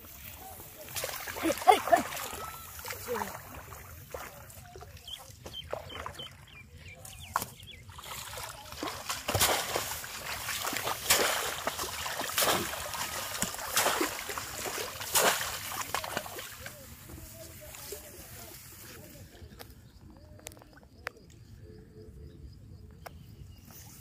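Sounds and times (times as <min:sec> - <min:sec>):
water splashing: 0:00.0 - 0:06.4, 0:07.2 - 0:19.1.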